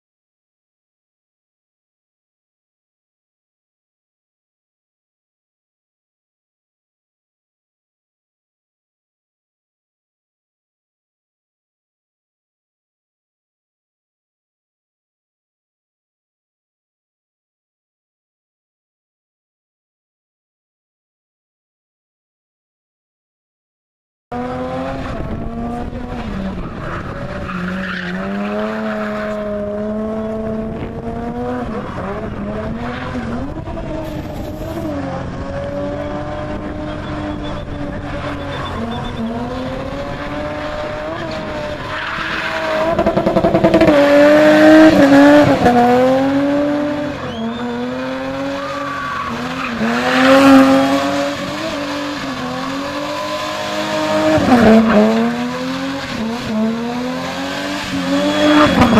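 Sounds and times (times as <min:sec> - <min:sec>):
car engine at high revs: 0:24.3 - 0:58.9
tyres squealing on tarmac: 0:26.4 - 0:29.6, 0:35.9 - 0:39.7, 0:40.9 - 0:43.2, 0:47.1 - 0:56.3.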